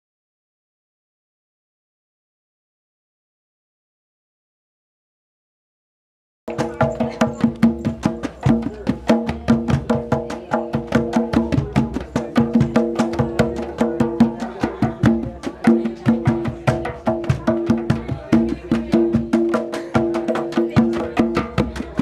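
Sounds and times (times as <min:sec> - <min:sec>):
hand drum played fast: 0:06.5 - 0:22.0.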